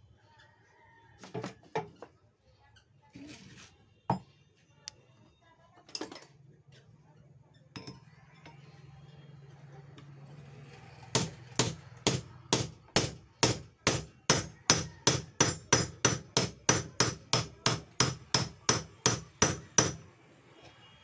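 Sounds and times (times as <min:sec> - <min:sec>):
hammer striking metal pipe: 0:11.2 - 0:20.0.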